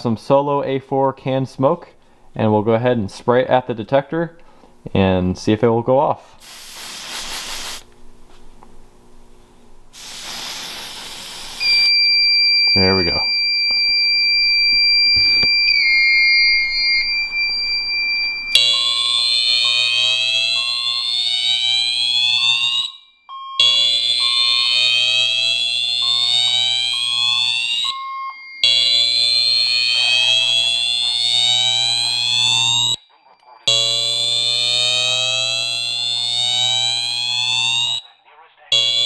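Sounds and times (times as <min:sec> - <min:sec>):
short beeps: 0:11.6 - 0:19.0, 0:22.9 - 0:24.4, 0:27.8 - 0:30.7, 0:32.2 - 0:34.4
fire alarm tone and whoop: 0:11.6 - 0:38.1, 0:38.7 - 0:39.0.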